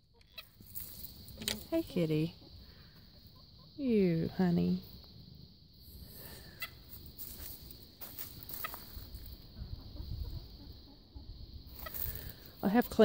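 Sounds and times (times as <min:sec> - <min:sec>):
hens clucking: 0:00.2 - 0:03.8, 0:08.5 - 0:13.0.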